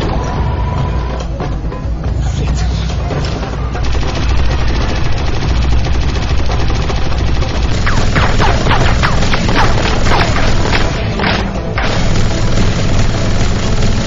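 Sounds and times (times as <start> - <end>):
automatic gunfire: 3.8 - 14.0.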